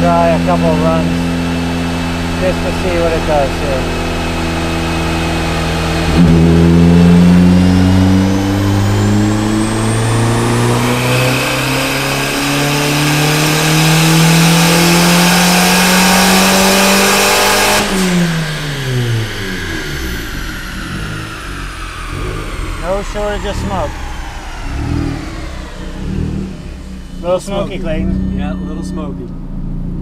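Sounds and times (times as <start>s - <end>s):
turbocharged car engine revving: 0.0s - 30.0s.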